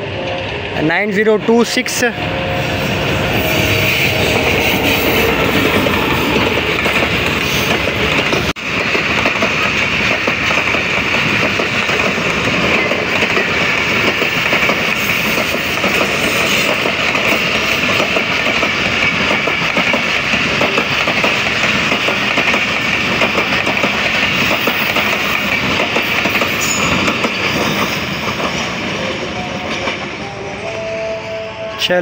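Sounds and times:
train coaches rumbling past: 0.0s - 32.0s
wheels clicking over rail joints: 6.5s - 28.7s.

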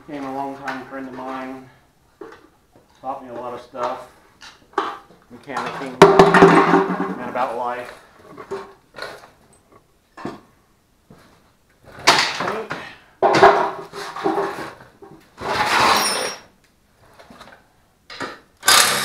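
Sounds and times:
tools clunking on concrete floor: 2.2s - 7.5s, 12.0s - 16.5s.

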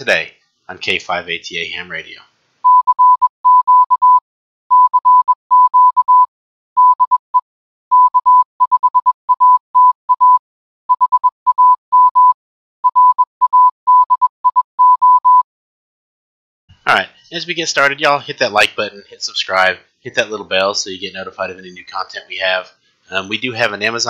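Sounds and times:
morse code beeps: 2.7s - 7.2s, 7.9s - 15.4s.

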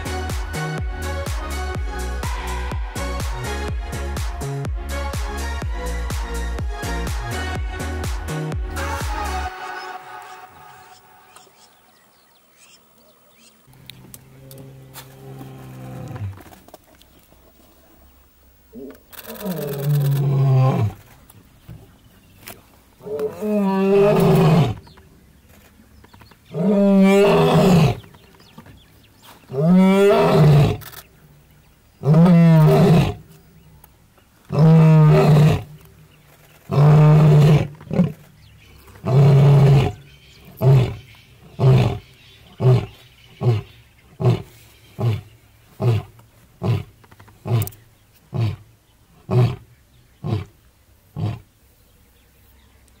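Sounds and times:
lion roaring: 32.0s - 33.2s, 34.5s - 35.7s, 36.6s - 38.3s, 39.0s - 45.2s.

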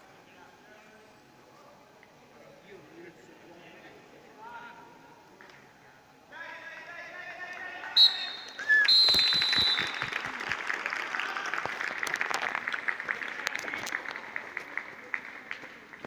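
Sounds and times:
referee's whistle blasts: 8.0s - 10.2s
crowd applauding: 8.4s - 16.0s.

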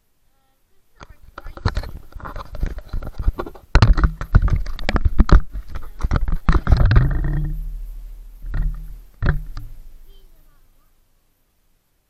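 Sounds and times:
camera knocks and scrapes: 1.3s - 10.0s
low ringing tone: 6.7s - 10.1s.

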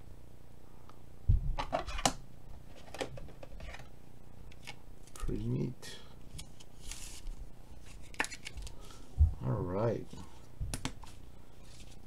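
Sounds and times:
card and plastic clicks and scrapes: 6.3s - 8.8s.

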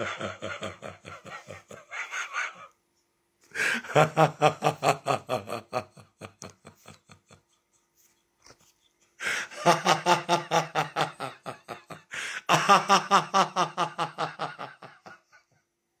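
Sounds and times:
woman laughing: 0.0s - 2.7s.

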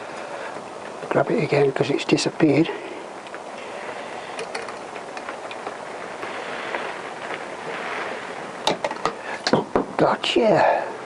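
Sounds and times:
background hiss: 0.0s - 11.0s.

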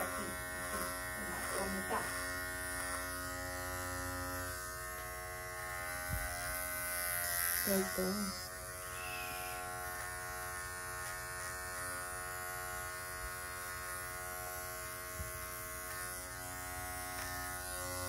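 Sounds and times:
electric clipper buzzing: 0.0s - 18.0s.

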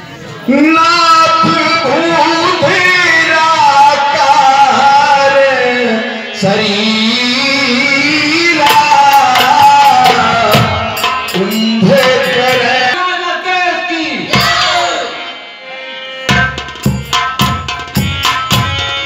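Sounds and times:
man singing through loudspeaker: 0.0s - 15.4s
drum strokes: 8.6s - 13.0s, 14.3s - 14.9s, 16.3s - 19.0s.

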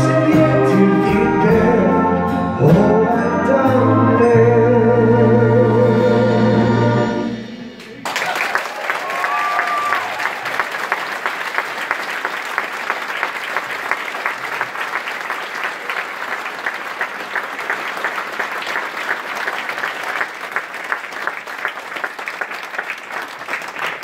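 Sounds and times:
audience applauding: 7.8s - 24.0s.

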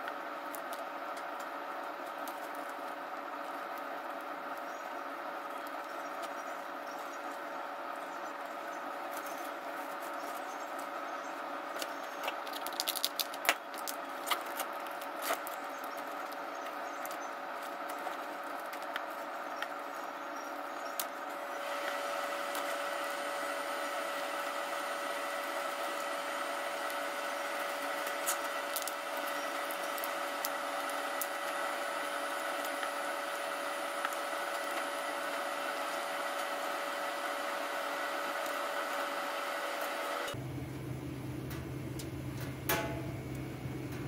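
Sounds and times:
steady hum: 0.0s - 44.0s
lobster shell cracking: 12.2s - 16.0s.

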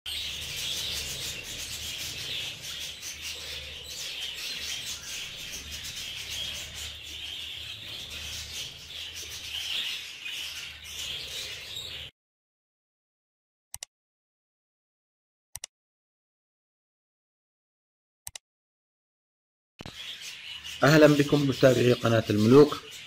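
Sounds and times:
budgerigars chattering: 0.1s - 12.1s, 19.9s - 23.0s.

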